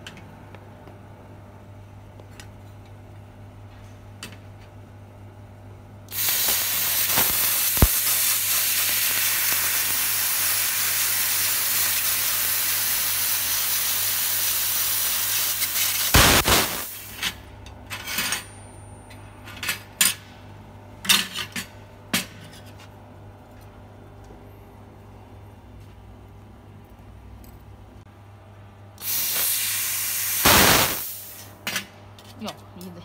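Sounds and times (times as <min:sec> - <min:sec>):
laser cutting hiss: 0:06.1 - 0:17.2, 0:29.0 - 0:31.5.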